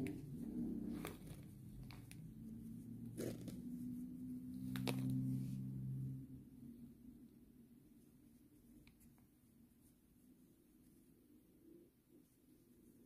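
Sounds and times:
crochet on plastic jar crinkling: 0.0 - 5.6
low steady hum: 0.0 - 13.0.

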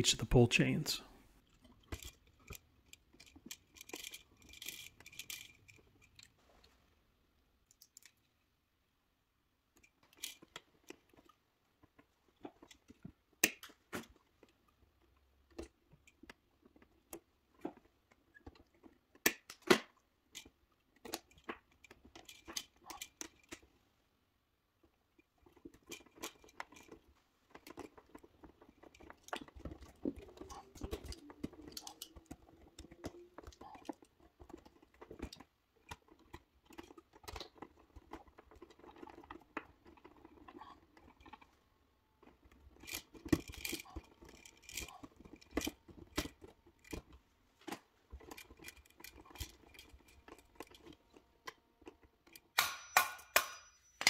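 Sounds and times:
wires rustling in hands: 1.4 - 7.0, 25.1 - 52.6.

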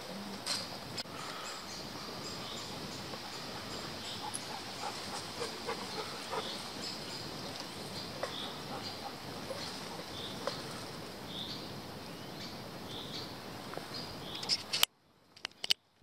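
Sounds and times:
steady outdoor hiss: 0.0 - 16.0
leaves and twigs crackling: 0.4 - 12.1.

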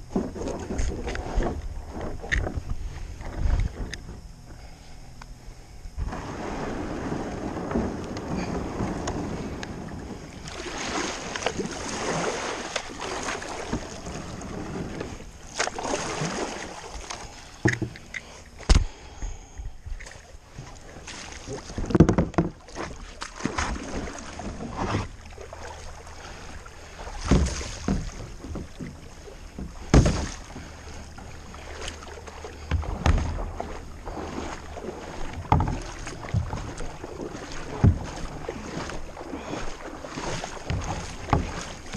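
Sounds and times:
paddle splashing water: 0.0 - 4.9, 6.0 - 19.2, 19.8 - 41.9
water swishing around hull: 0.0 - 41.9
paddle knocking: 6.0 - 19.4, 20.0 - 41.9.

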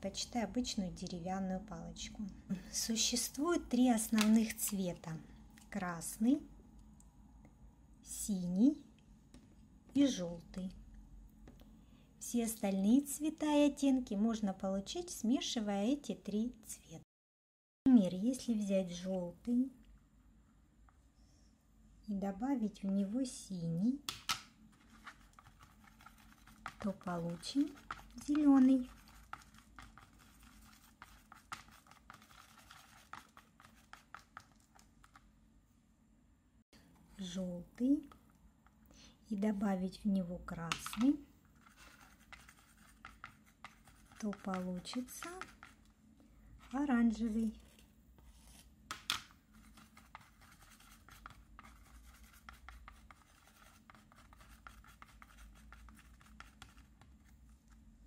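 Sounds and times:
stick stirring paint on palette: 4.0 - 4.9, 24.0 - 35.4, 40.6 - 58.0.

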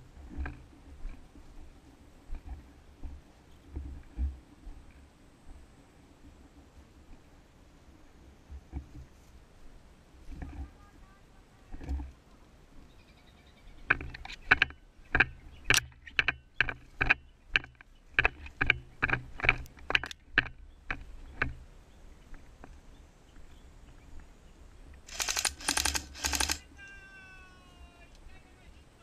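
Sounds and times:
airsoft gun firing: 25.1 - 26.6.

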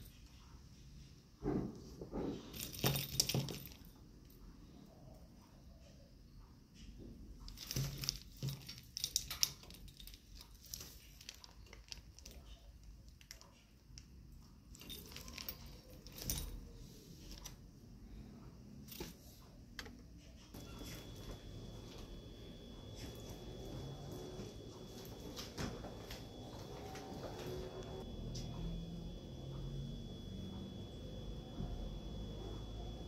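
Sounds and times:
small metal rings jingling: 7.5 - 12.5, 14.7 - 16.7.

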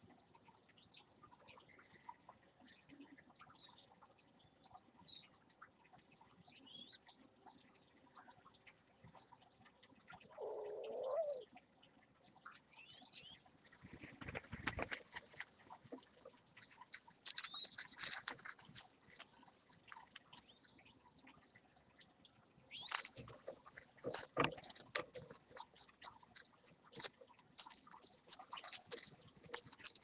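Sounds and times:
clicks and rustles on nest: 13.7 - 20.5, 22.8 - 30.0.

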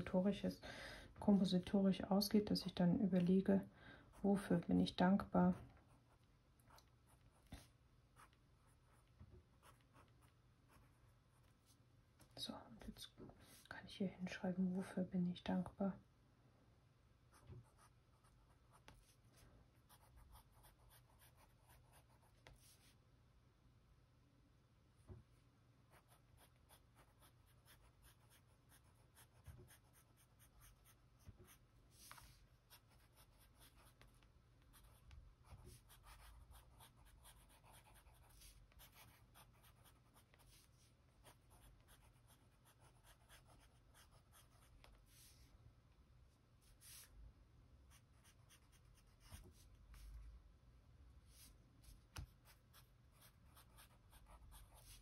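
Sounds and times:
pencil scratching on paper: 7.0 - 11.8, 17.3 - 22.9, 25.9 - 45.4, 47.9 - 50.1, 51.4 - 55.0.

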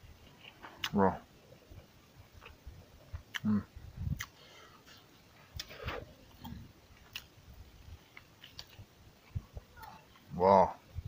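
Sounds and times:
person chewing meat: 5.6 - 7.3, 8.1 - 9.4.

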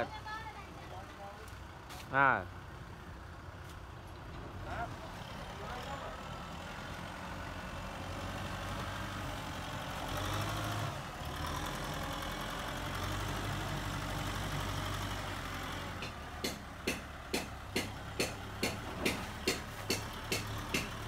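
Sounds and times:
tractor diesel engine running: 2.5 - 21.0
sharp knocks: 16.0 - 21.0.

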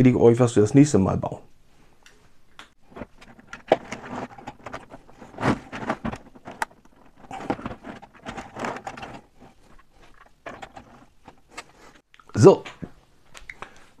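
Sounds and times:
plastic bricks clicking and rattling: 2.9 - 11.6.

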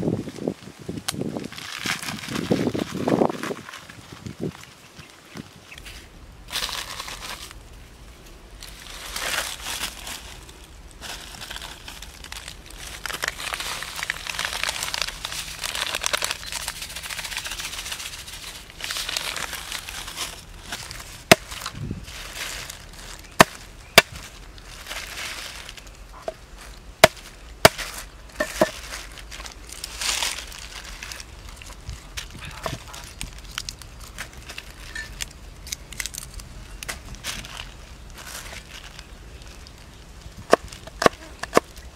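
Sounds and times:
plastic packet crinkling: 6.5 - 7.6, 8.6 - 40.0.

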